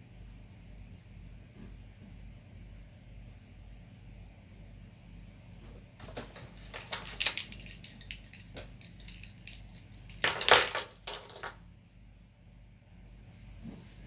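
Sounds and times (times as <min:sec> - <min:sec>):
clicking and clattering: 0:06.0 - 0:11.6.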